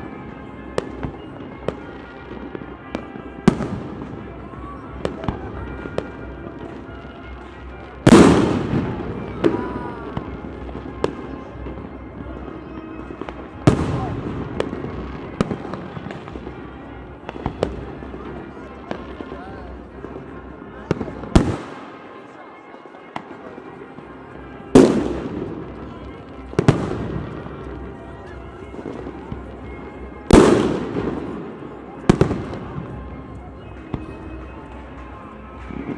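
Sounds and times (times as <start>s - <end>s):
fireworks bursting: 0.0s - 22.4s, 23.0s - 35.9s
sharp firework bangs: 8.0s - 9.6s, 30.3s - 31.5s.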